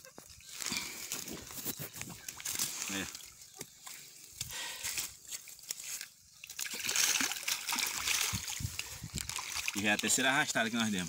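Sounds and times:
water trickling and splashing: 0.0s - 11.0s
net sloshing in water: 5.0s - 10.3s.

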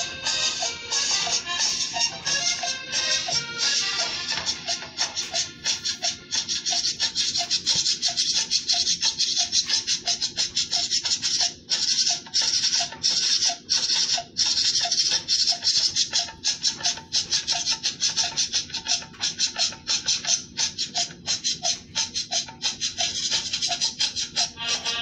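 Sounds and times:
fast beat music: 0.0s - 25.0s.

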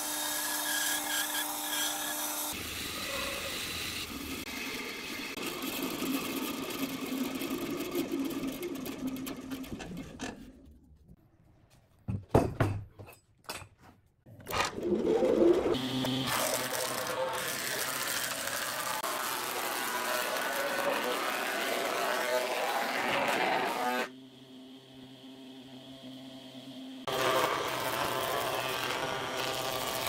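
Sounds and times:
bandsaw cutting wood: 0.0s - 7.2s, 14.6s - 24.1s, 27.1s - 30.0s
planer running: 14.5s - 24.2s, 25.1s - 30.0s.

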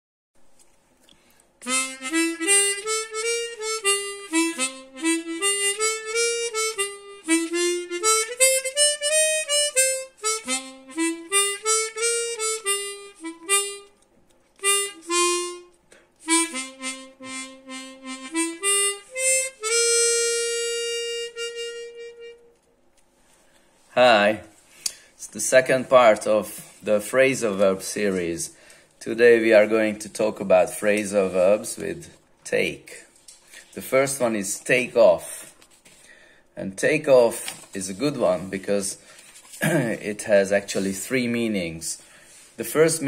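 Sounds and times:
harmonica melody: 1.6s - 14.0s, 14.6s - 22.7s.

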